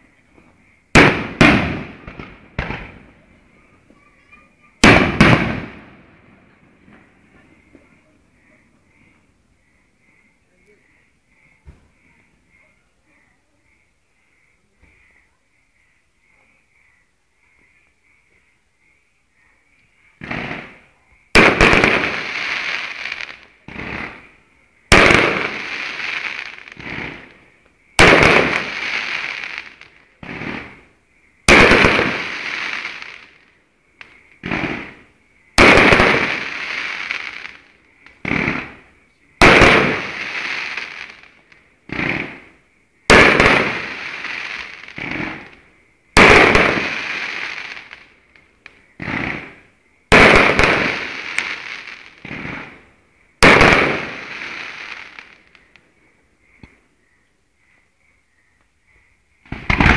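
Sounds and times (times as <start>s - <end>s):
small firework pops: 0.3s - 3.2s, 4.8s - 6.0s, 6.8s - 8.1s, 11.6s - 12.3s, 20.2s - 20.8s, 21.4s - 24.3s, 24.9s - 30.8s, 31.5s - 38.8s, 39.4s - 42.5s, 43.1s - 52.8s, 53.4s - 55.9s, 56.5s - 56.8s, 59.4s - 59.9s
loud firework bangs: 0.9s - 3.2s, 4.6s - 7.0s, 20.2s - 24.3s, 24.9s - 27.4s, 28.0s - 30.8s, 31.4s - 33.4s, 34.4s - 37.6s, 38.2s - 48.0s, 49.0s - 52.8s, 53.4s - 55.4s, 59.4s - 59.9s
rushing firework noise: 0.9s - 3.4s, 4.6s - 7.1s, 20.2s - 24.3s, 24.9s - 48.4s, 49.0s - 55.6s, 59.4s - 59.9s.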